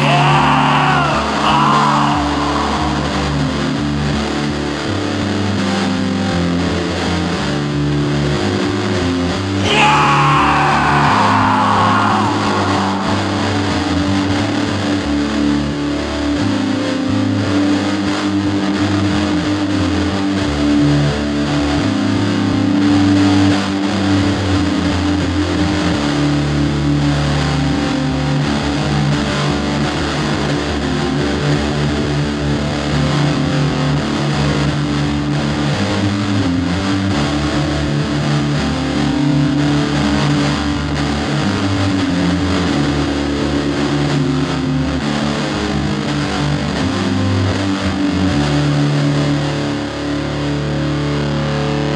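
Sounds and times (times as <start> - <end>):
long held low notes: 0.0 - 4.4, 9.6 - 14.8
distorted electric guitar: 0.0 - 51.9.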